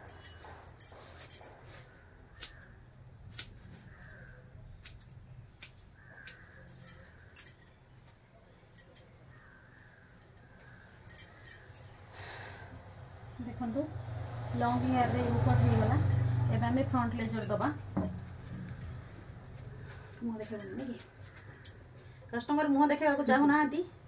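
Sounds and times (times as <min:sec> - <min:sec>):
scissors snipping hair: 0:02.4 - 0:07.5.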